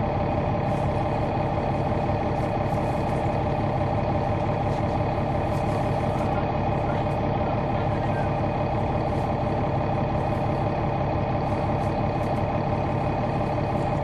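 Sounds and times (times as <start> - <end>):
bus diesel engine running: 0.0 - 14.0.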